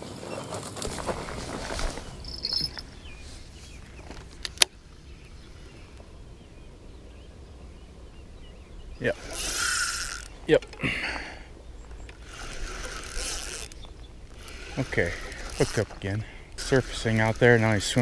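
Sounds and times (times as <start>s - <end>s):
faint birds chirping: 0.0s - 18.0s
footsteps in grass: 0.5s - 4.4s
insects chirping: 0.8s - 18.0s.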